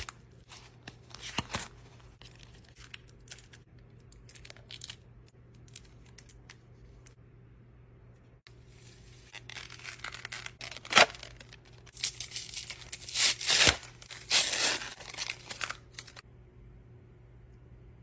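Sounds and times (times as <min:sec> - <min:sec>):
packet tearing and crinkling: 0:09.3 - 0:16.2.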